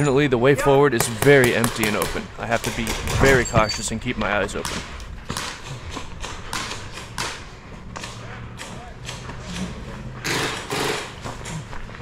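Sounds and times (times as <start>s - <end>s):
footsteps on gravel: 11.1s - 12.0s.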